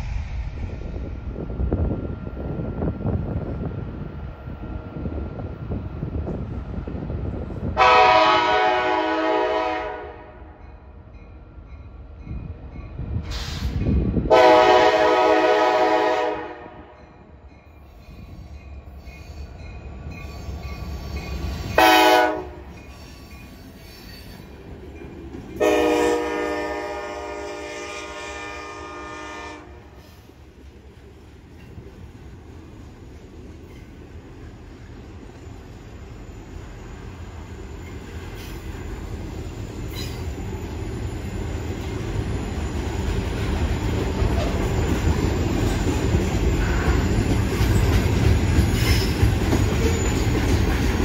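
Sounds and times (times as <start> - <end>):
low rumble of locomotive: 0.0 - 51.0
train cars rolling past: 0.0 - 51.0
locomotive air horn blasts: 7.8 - 10.6, 14.3 - 17.0, 21.8 - 22.7, 25.6 - 30.1.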